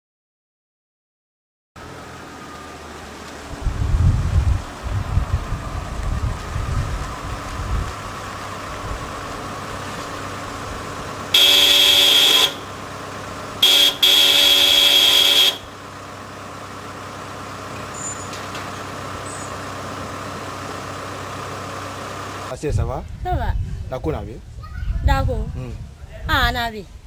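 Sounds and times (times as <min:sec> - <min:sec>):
vehicle engine running: 0:01.8 - 0:22.5
car horn blasts: 0:11.3 - 0:12.8, 0:13.6 - 0:15.8.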